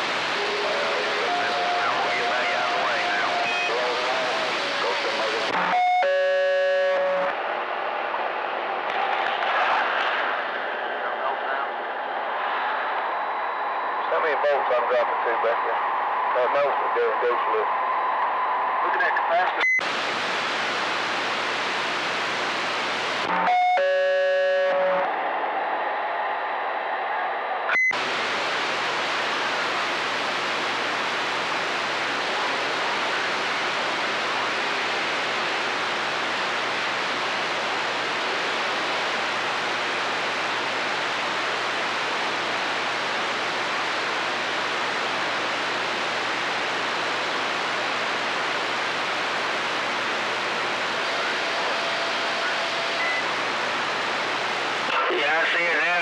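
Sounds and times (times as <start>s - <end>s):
distorted buzzing tone: 0.0s - 7.4s, 19.6s - 25.1s
radio static hiss: 0.0s - 56.0s.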